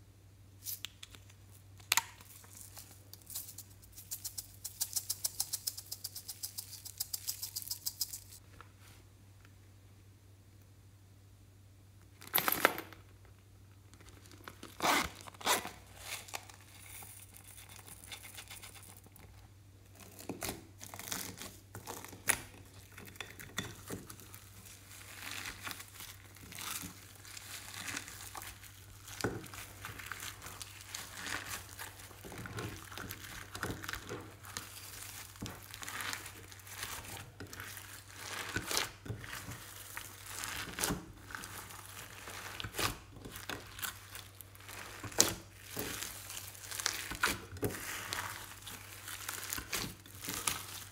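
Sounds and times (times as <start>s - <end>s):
hands squishing slime: 23.8s - 50.9s.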